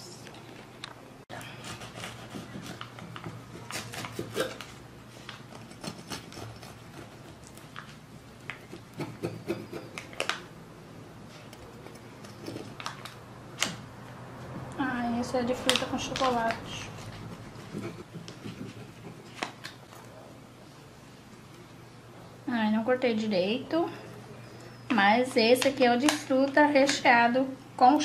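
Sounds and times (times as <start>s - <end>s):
knife sawing through bread crust: 1.5s - 4.6s, 5.6s - 7.4s.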